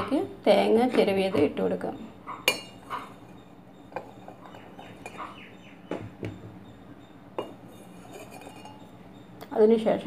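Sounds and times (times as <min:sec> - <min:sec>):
utensil tapping bowl and metal: 0:02.4 - 0:06.6, 0:07.4 - 0:09.0.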